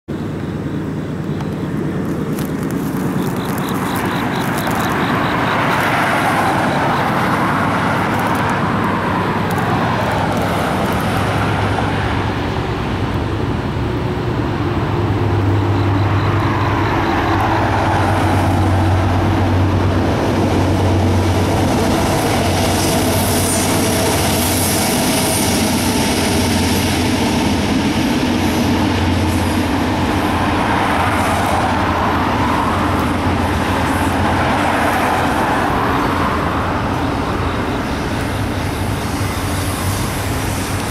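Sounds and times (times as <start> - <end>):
diesel locomotive drone: 0.1 - 40.9
freight cars rumbling: 0.1 - 40.9
train wheel squeal: 3.2 - 7.6, 15.5 - 19.5, 21.9 - 40.9.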